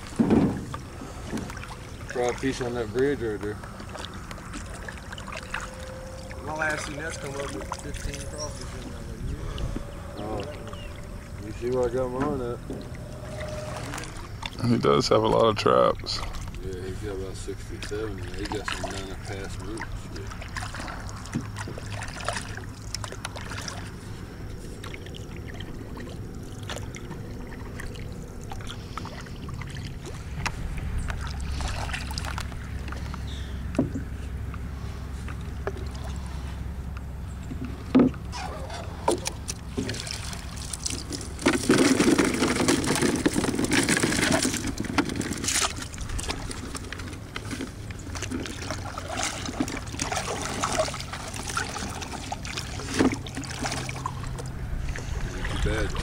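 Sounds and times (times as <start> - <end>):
water splashing and dripping: 0.0 - 9.0, 10.3 - 34.6, 39.0 - 56.0
steady low hum: 0.0 - 56.0
knocks against boat hull: 0.2 - 0.7, 37.9 - 38.2.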